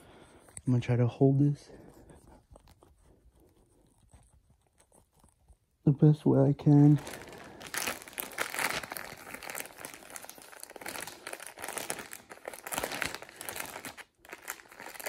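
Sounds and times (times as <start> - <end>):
plastic mailer bag crinkling: 6.6 - 15.0.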